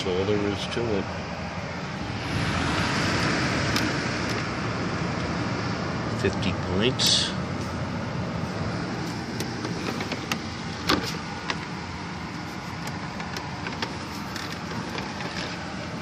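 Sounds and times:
dehumidifier humming: 0.0s - 16.0s
handling clicks and knocks: 9.4s - 11.7s, 12.3s - 15.6s.

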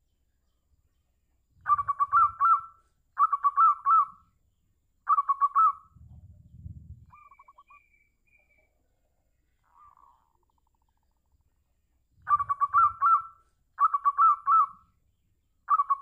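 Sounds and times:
dove cooing: 5.1s - 7.9s, 9.7s - 10.9s
low rumble: 5.9s - 7.4s.

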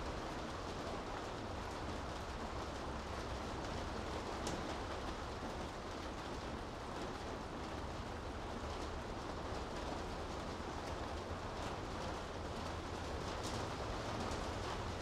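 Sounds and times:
steady rain hiss: 0.0s - 15.0s
faint rain drop ticks: 3.2s - 5.2s, 9.6s - 15.0s.

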